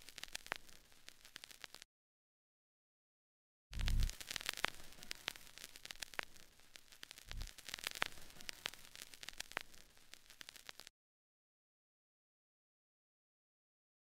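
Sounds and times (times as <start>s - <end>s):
static hiss and crackle: 0.0s - 1.9s, 3.7s - 10.9s
sharp ticks: 3.8s - 10.9s.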